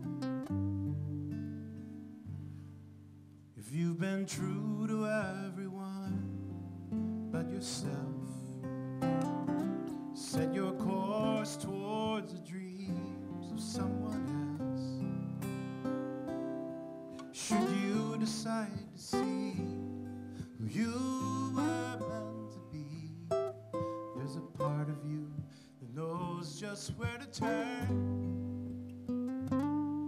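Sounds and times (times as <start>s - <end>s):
acoustic guitar: 0.0s - 30.0s
classical guitar: 0.0s - 30.0s.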